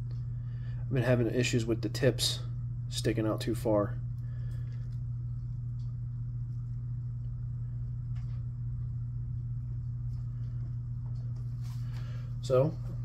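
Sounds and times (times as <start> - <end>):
steady low hum: 0.0 - 13.0
faint rumble: 3.6 - 13.0.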